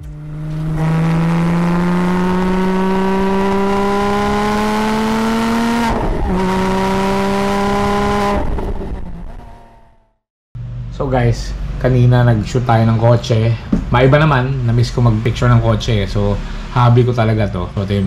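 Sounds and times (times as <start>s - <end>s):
car engine accelerating: 0.0s - 11.9s.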